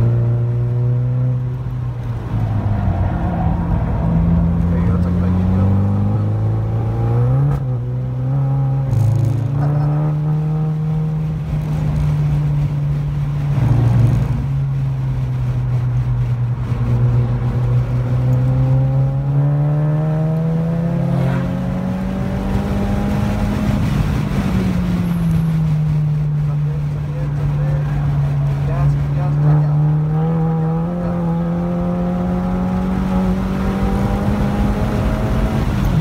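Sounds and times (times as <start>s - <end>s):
car engine revving: 0.0s - 36.0s.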